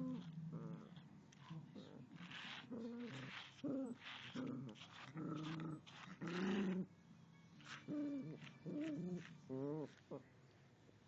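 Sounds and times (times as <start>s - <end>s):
small dog growling: 0.0s - 6.9s.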